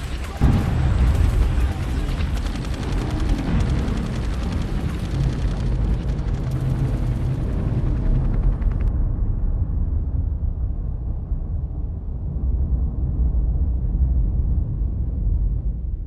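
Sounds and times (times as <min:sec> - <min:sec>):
rapid gunfire: 0:00.0 - 0:08.9
dense low rumble: 0:00.0 - 0:16.0.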